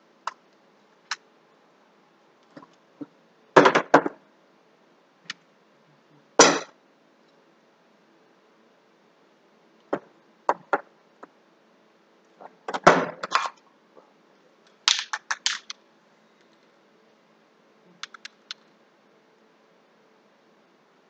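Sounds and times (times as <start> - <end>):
hard objects clicking and knocking: 9.9 - 10.9, 14.9 - 15.8, 18.0 - 18.7.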